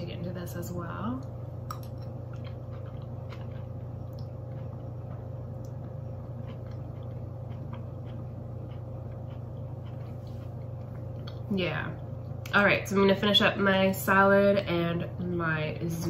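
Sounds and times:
steady low hum: 0:00.0 - 0:16.0
person chewing soft food: 0:01.2 - 0:11.5.

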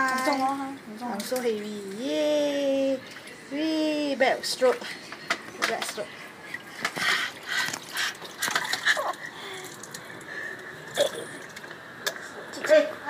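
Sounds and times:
water splashing in a tub: 0:05.6 - 0:12.2.

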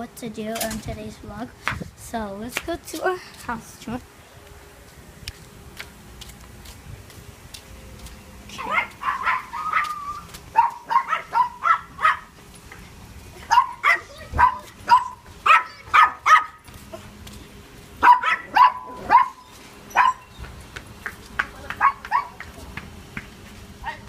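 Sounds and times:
dog barking: 0:08.6 - 0:12.3, 0:13.5 - 0:16.6, 0:18.0 - 0:20.3, 0:21.8 - 0:22.4.

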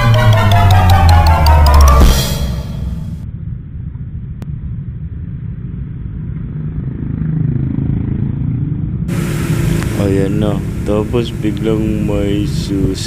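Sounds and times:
road noise: 0:00.0 - 0:13.0
motorcycle engine rumble: 0:03.2 - 0:13.0.

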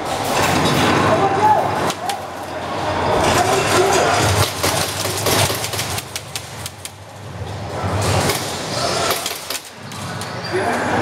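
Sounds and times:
airsoft guns firing: 0:04.2 - 0:06.8.

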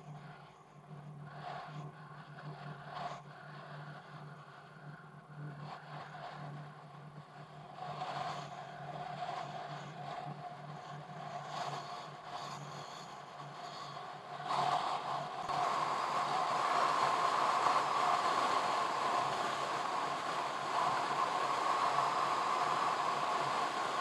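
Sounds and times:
car engine and tyre noise: 0:13.4 - 0:24.0.

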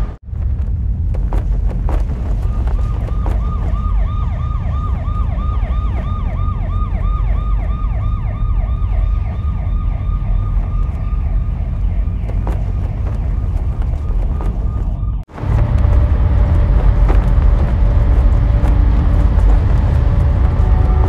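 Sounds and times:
city traffic rumble: 0:00.0 - 0:21.0
siren yelping: 0:02.7 - 0:15.3.

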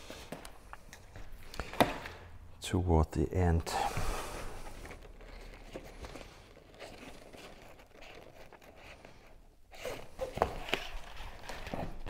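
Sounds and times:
fabric rustling and crinkling: 0:04.2 - 0:12.0.

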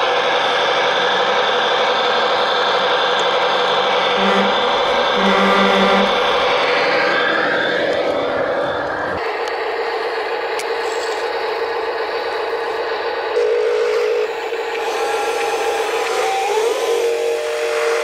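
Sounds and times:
small electric motor whining: 0:13.4 - 0:18.0.

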